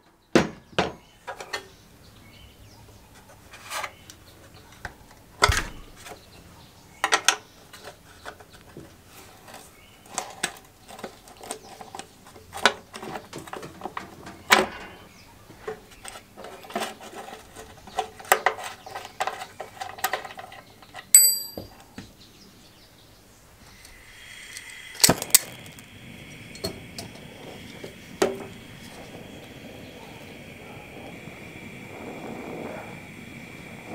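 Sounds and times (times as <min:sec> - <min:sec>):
spanner and steel parts clinking: 0:19.3 - 0:21.7
metallic ding: 0:21.2 - 0:21.7
blowtorch hissing: 0:23.5 - 0:33.9
blowtorch igniter click: 0:23.8 - 0:33.9.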